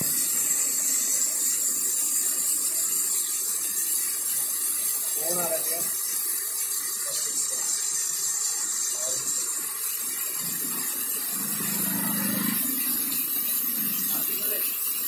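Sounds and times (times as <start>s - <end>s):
heavy rain pouring: 10.1s - 14.8s
auto-rickshaw engine passing: 10.3s - 14.6s.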